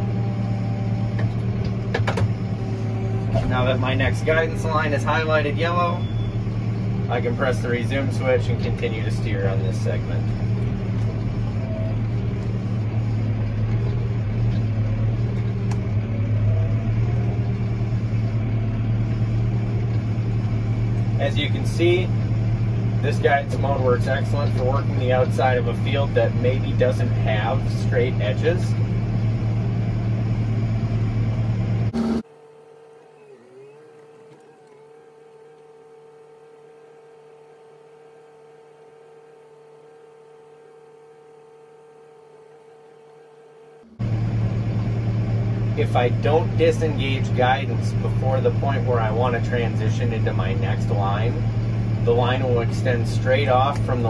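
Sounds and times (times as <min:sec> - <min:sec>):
tractor engine droning: 0:00.0 - 0:54.0
held tone: 0:05.7 - 0:06.8.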